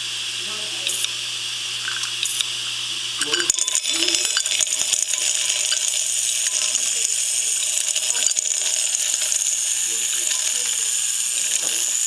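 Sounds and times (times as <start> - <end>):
hard drive high whine: 0.0 - 12.0
kibble clattering on spinning platter: 3.2 - 12.0.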